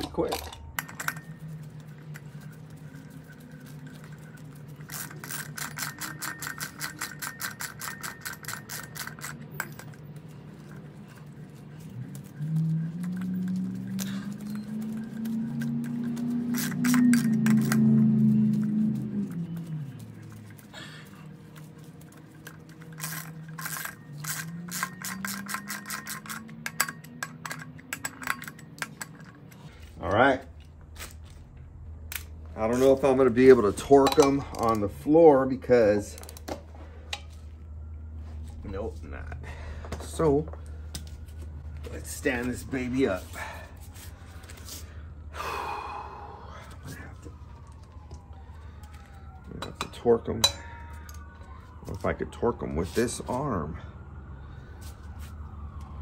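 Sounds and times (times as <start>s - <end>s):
metal rubbing: 0.0s - 31.4s
ratchet wrench clicking: 4.0s - 10.0s, 13.1s - 18.0s, 22.4s - 29.2s.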